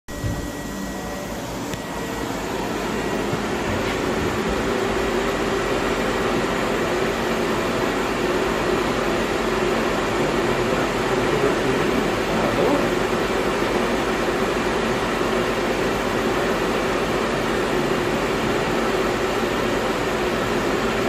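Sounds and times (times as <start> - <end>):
faint high whine: 0.1 - 13.0
machinery humming: 0.1 - 21.0.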